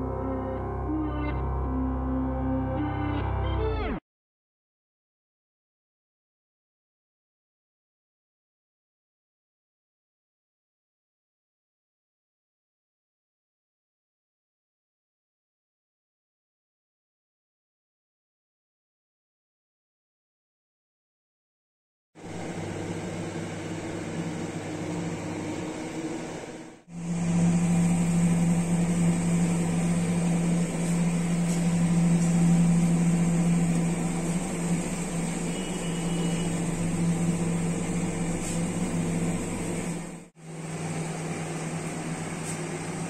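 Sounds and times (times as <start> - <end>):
steady mechanical hum: 22.2 - 43.0.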